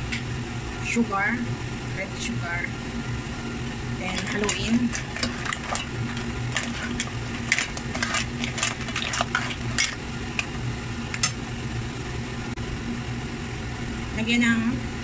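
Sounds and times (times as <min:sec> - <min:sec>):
steady low hum: 0:00.0 - 0:15.0
clam shells clacking in pot: 0:04.1 - 0:10.6.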